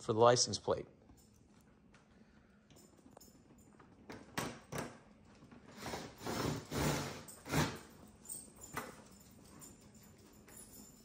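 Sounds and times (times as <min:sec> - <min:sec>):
cordless drill driving screws: 0:05.7 - 0:07.9.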